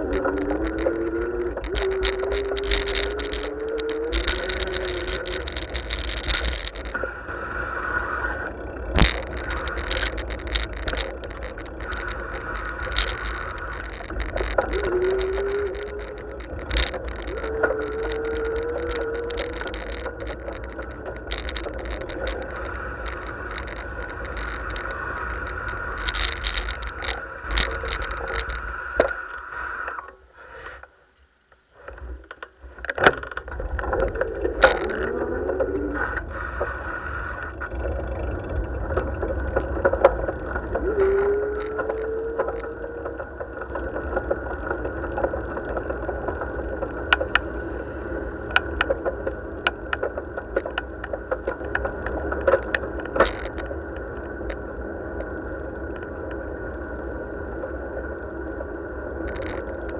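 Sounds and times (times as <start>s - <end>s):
tyre rumble: 0.0s - 29.1s
wind noise: 0.0s - 30.1s, 31.8s - 59.9s
bicycle knocks and rattles: 32.2s - 35.8s
motor traffic: 34.3s - 52.2s.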